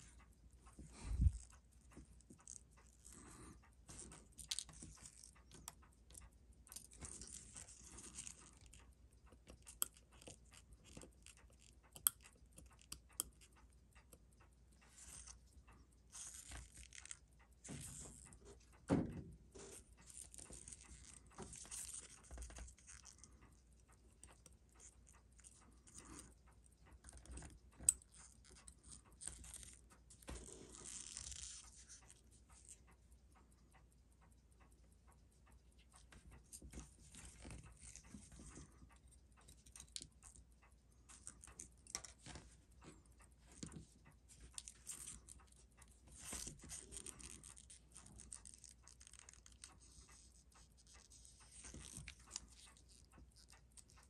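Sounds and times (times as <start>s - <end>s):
small objects clicking and scraping: 2.3s - 8.9s, 27.0s - 32.8s.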